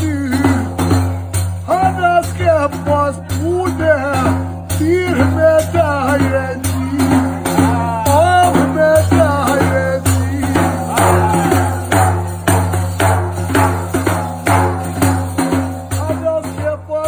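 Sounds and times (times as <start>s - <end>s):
frame drum beaten by hand: 0.0s - 17.0s
person singing: 3.2s - 12.3s.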